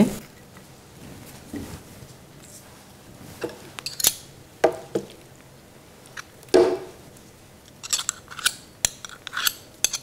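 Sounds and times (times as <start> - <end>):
spoons clinking on plate and pot: 7.8 - 10.0.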